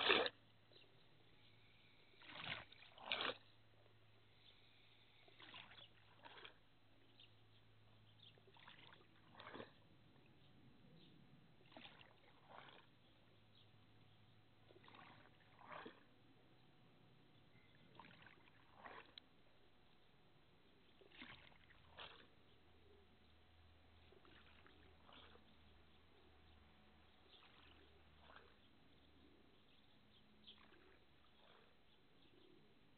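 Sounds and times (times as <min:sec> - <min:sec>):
water trickling: 0:00.0 - 0:00.5, 0:04.3 - 0:06.7, 0:08.2 - 0:10.4, 0:11.6 - 0:13.6, 0:14.6 - 0:16.1, 0:17.5 - 0:19.3, 0:20.9 - 0:22.3, 0:23.9 - 0:29.1
small water splashes: 0:00.0 - 0:00.8, 0:02.1 - 0:03.6, 0:04.3 - 0:07.3, 0:08.2 - 0:10.4, 0:11.6 - 0:13.6, 0:14.6 - 0:16.2, 0:17.5 - 0:19.7, 0:20.8 - 0:22.5, 0:23.9 - 0:31.9
low steady hum: 0:00.0 - 0:32.9.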